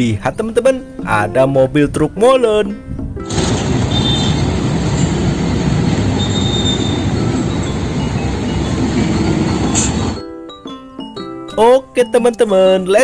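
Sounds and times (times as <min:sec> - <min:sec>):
heavy diesel truck rumble: 0:03.2 - 0:10.2
faint high squeal: 0:03.9 - 0:10.1.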